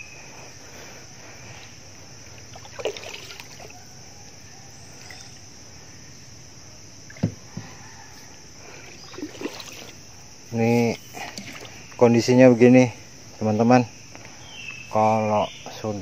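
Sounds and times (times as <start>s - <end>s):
paddle splashing water: 2.4s - 3.7s, 9.1s - 10.0s, 11.2s - 11.9s.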